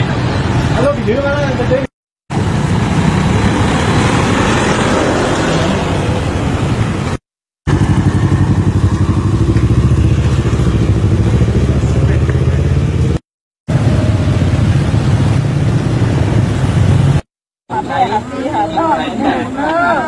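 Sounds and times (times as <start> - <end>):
outdoor road noise: 0.0 - 20.0
vehicle engine pulsing: 2.3 - 17.2.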